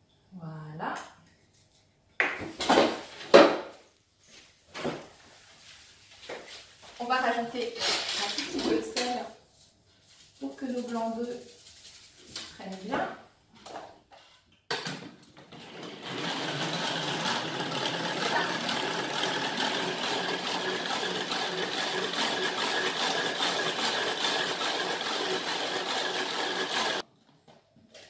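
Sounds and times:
hand-cranked whisk whirring: 15.5s - 27.0s.

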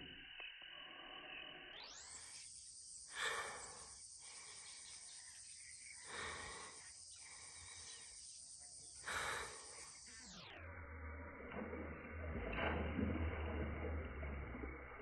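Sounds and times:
high-pitched insect chorus: 0.0s - 11.8s.

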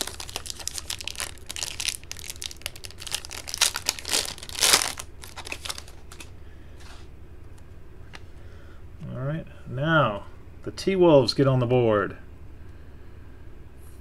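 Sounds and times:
foil wrapper crinkling and tearing: 0.0s - 6.3s.

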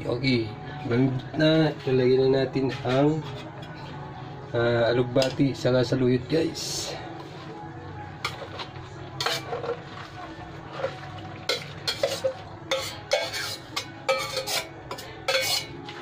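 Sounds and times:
metal spoon scraping steel bowl: 8.2s - 16.0s.

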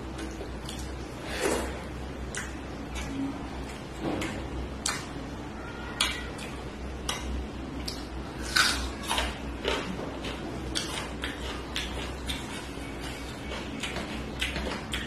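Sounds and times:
steady low hum: 0.0s - 15.0s
wet chewing and lip-smacking: 2.2s - 5.1s, 6.0s - 15.0s.

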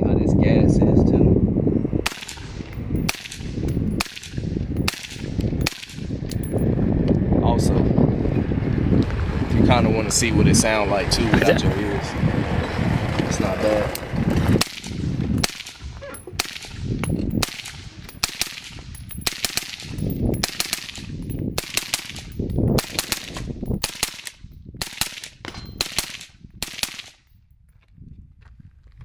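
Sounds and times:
suppressed rifle shots: 2.1s - 6.6s, 14.6s - 27.2s
bullets clanging on steel targets: 2.1s - 6.7s, 14.6s - 27.4s.

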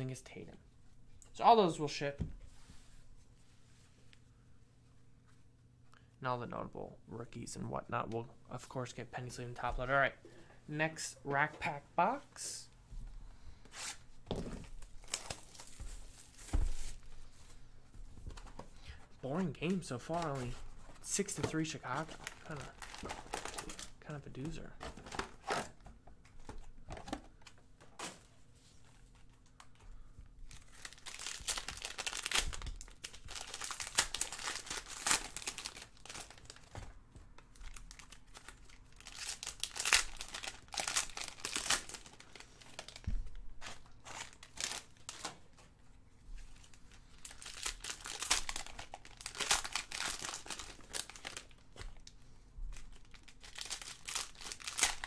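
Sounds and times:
foil wrappers crinkling and tearing: 14.9s - 17.0s, 30.5s - 36.8s, 37.6s - 45.4s, 46.6s - 55.0s.

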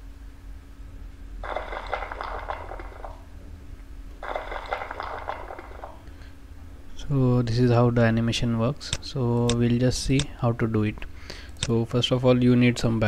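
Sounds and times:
steady electrical hum: 0.0s - 13.0s
crumbling crackling rubble: 1.4s - 3.3s, 4.2s - 6.1s.

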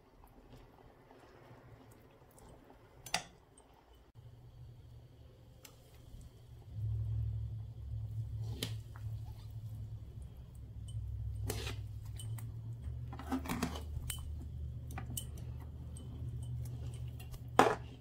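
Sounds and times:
steady low hum: 3.6s - 18.0s
metal spatula scraping a pan: 11.3s - 12.4s, 13.0s - 14.1s.

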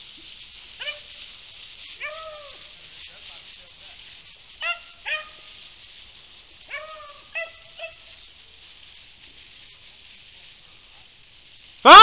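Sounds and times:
hounds baying and yelping: 0.7s - 2.9s, 4.5s - 5.7s, 6.6s - 8.3s.

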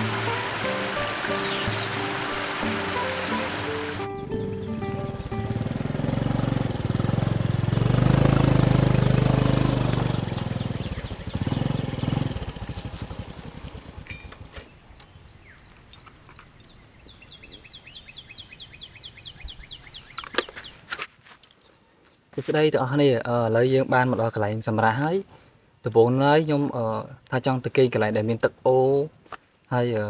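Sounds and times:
motor vehicle passing: 0.0s - 14.5s.

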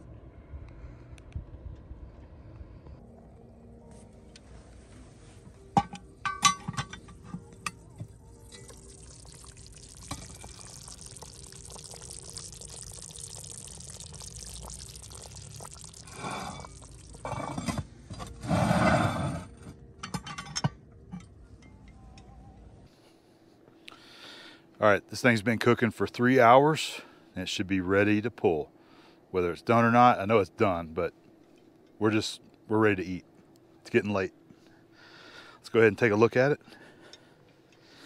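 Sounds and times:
metal lid clinking: 5.8s - 7.9s
gravy simmering and bubbling: 7.5s - 18.8s.

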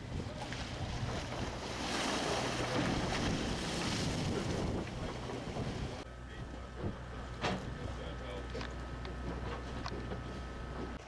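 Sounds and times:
waves splashing against boat hull: 0.0s - 6.0s
wind buffeting microphone: 2.5s - 6.0s.

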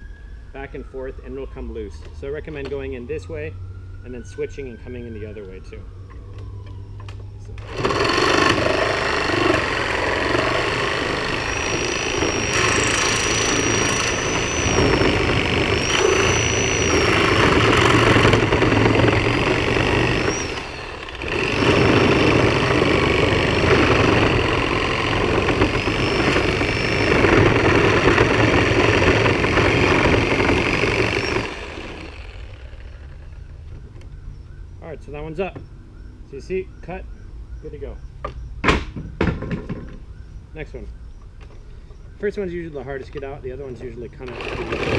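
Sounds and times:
reciprocating saw cutting wood: 7.5s - 33.4s, 44.2s - 44.9s.

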